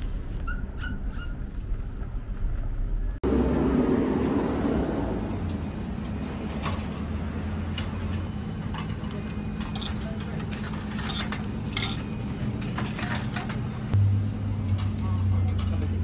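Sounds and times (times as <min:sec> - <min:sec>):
coins clinking through machine: 0:08.6 - 0:13.9.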